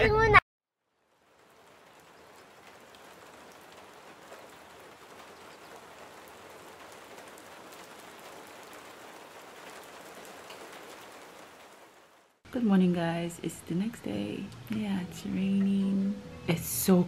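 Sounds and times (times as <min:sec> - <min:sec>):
rain falling on a wet street: 0:00.9 - 0:12.4.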